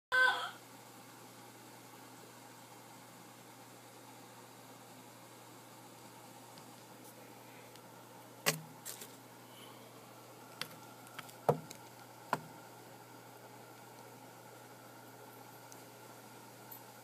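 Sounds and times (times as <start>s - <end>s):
faint low hum: 0.1s - 17.0s
sharp clicks and knocks: 10.6s - 12.5s.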